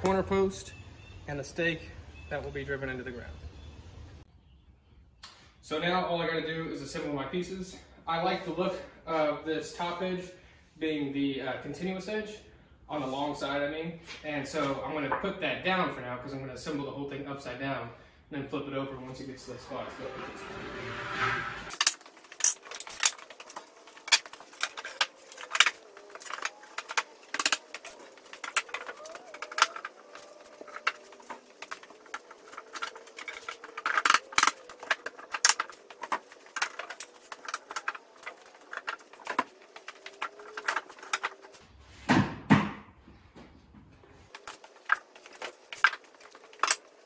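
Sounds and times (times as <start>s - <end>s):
wooden boards clattering on concrete: 21.7s - 42.8s, 44.2s - 47.0s.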